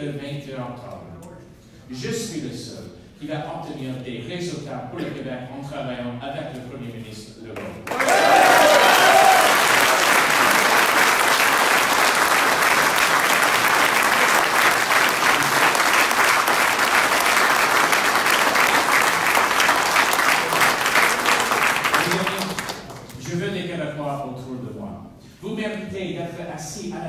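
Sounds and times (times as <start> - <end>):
audience applauding: 7.8 - 23.1.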